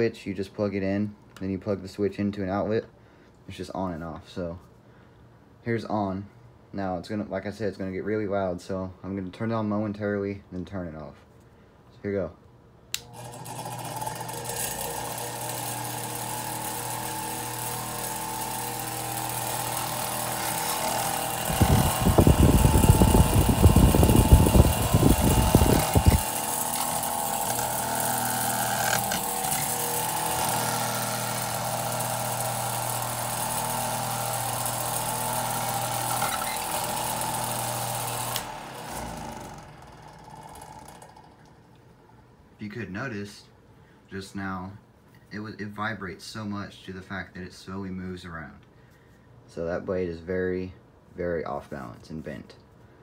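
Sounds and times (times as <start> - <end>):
desk fan running: 12.9 - 42.1
fan spinning down: 13.0 - 42.3
fan vibrating: 13.1 - 41.7.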